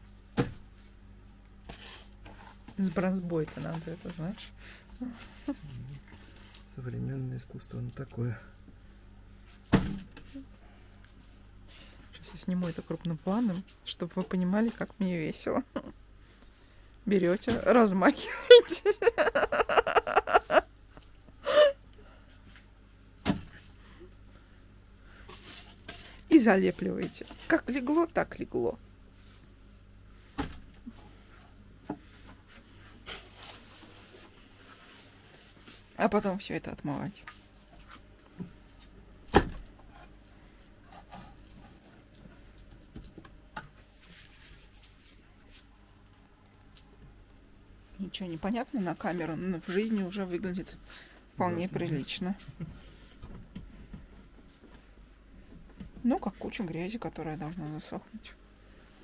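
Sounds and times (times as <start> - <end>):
person laughing: 18.2 - 21.8.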